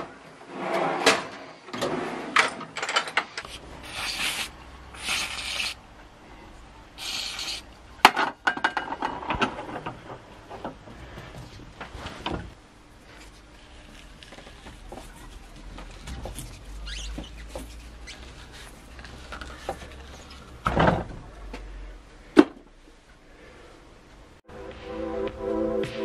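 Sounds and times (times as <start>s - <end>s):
rubbing and scraping handling noises: 10.5s - 20.6s.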